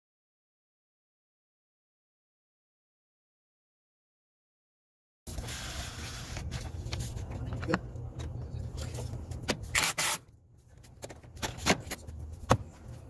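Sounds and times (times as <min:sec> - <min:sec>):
cordless drill driving screws: 0:09.8 - 0:10.2.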